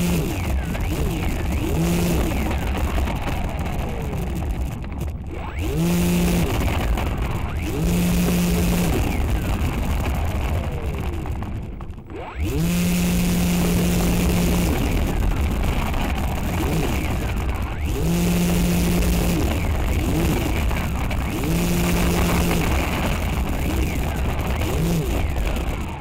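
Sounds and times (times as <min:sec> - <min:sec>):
electric motors and propellers whirring: 0:00.0 - 0:26.0
steady low hum: 0:00.0 - 0:26.0.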